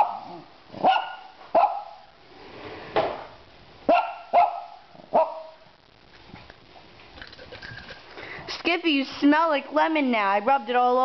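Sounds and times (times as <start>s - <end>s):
dog barking high-pitched: 0.0s - 2.1s, 3.9s - 5.7s.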